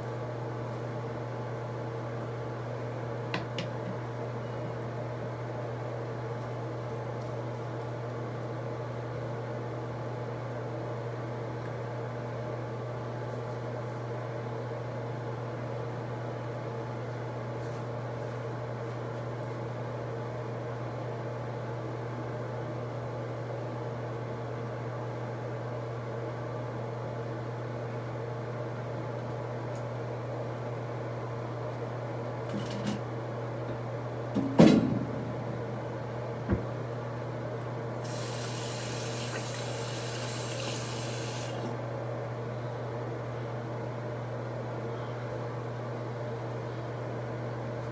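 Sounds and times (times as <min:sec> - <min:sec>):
low mechanical hum: 0:00.0 - 0:47.9
steady hiss: 0:38.0 - 0:41.7.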